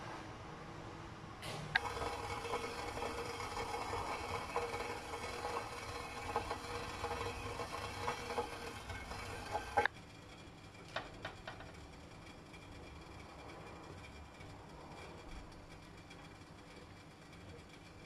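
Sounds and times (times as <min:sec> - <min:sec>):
steady hum: 0:00.0 - 0:18.0
spatula scraping saucepan: 0:01.8 - 0:09.9.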